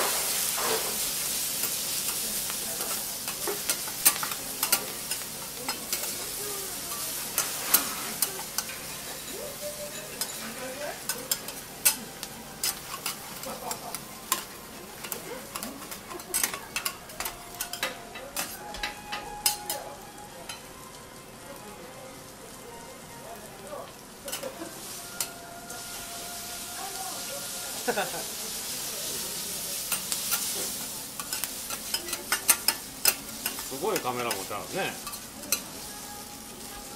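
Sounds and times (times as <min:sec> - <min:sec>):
food sizzling on griddle: 0:00.0 - 0:36.9
metal spatulas clinking and scraping: 0:02.8 - 0:19.8, 0:24.3 - 0:24.6, 0:29.9 - 0:35.8.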